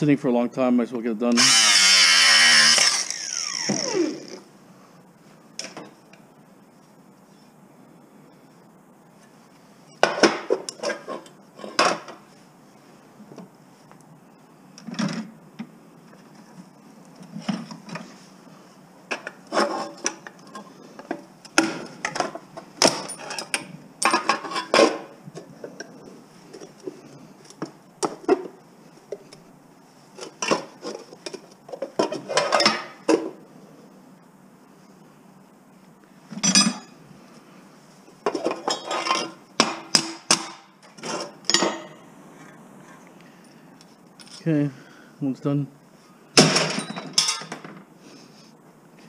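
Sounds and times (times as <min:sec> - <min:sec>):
scrap metal parts clinking: 0:22.9 - 0:24.9, 0:46.7 - 0:47.6.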